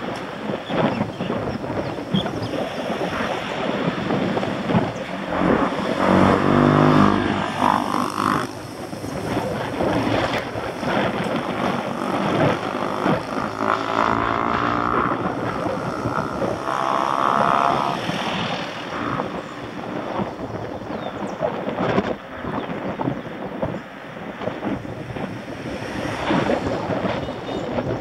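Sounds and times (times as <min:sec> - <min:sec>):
wind buffeting the microphone: 0:00.0 - 0:28.0
engine-like hum: 0:01.0 - 0:21.1
passing car engine hum: 0:04.0 - 0:20.4.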